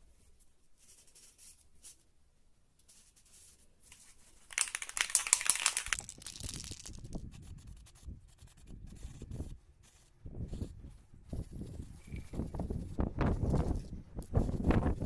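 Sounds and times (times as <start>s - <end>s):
spray paint can hissing: 4.5s - 7.2s
wind rumble on microphone: 6.5s - 15.0s.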